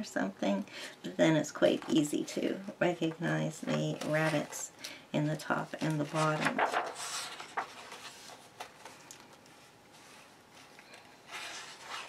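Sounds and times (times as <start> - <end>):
paper rustling: 5.7 - 12.0
paper page turning: 5.8 - 12.0.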